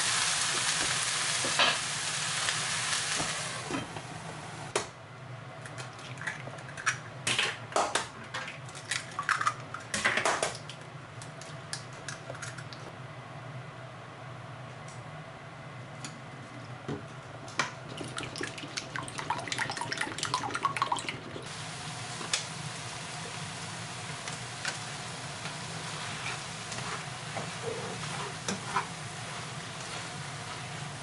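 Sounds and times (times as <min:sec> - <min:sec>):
stir-fry sizzling in pan: 0:00.0 - 0:04.7, 0:21.4 - 0:31.0.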